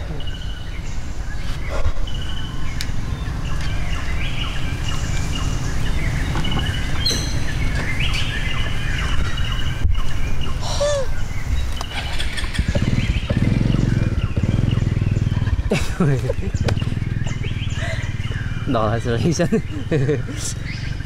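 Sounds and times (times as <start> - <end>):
birds chirping and calling: 0.0 - 21.0
rising and falling bird call: 0.0 - 21.0
steady low rumble: 11.2 - 21.0.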